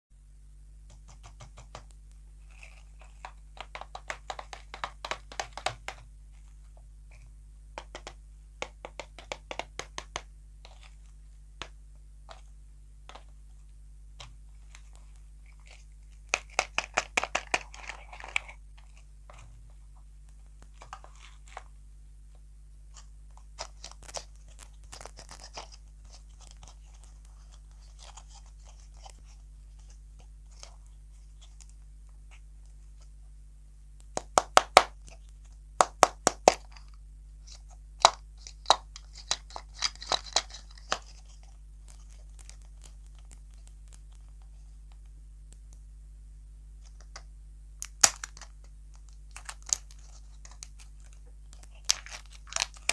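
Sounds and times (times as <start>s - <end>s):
faint low hum: 0.1s - 52.9s
fingernails tapping plastic shells: 0.9s - 2.0s, 2.6s - 6.1s, 7.8s - 10.9s, 16.2s - 18.6s, 34.1s - 35.2s, 35.8s - 36.9s.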